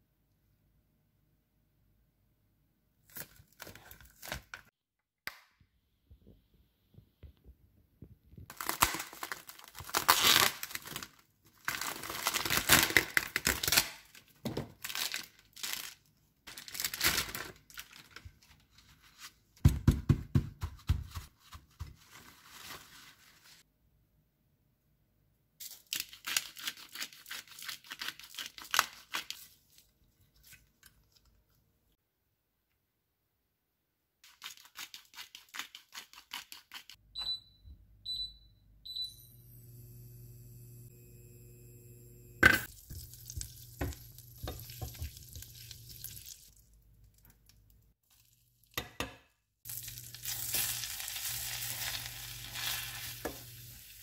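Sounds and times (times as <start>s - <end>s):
cling film tearing and crinkling: 8.5s - 18.2s, 42.6s - 46.6s, 49.7s - 54.0s.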